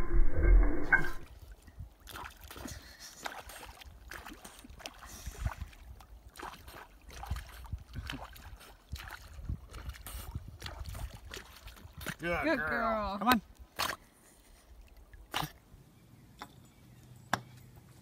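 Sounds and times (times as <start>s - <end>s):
muffled sound: 0.0s - 1.3s
water lapping and splashing: 1.0s - 15.8s.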